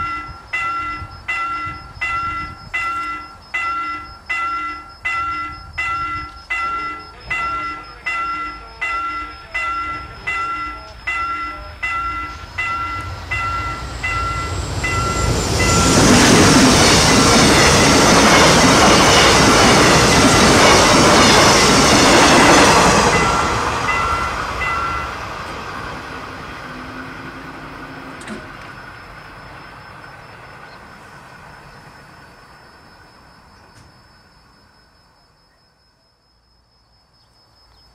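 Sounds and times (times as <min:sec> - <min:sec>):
railroad crossing bell ringing: 0:00.0 - 0:30.0
train passing: 0:00.0 - 0:35.1.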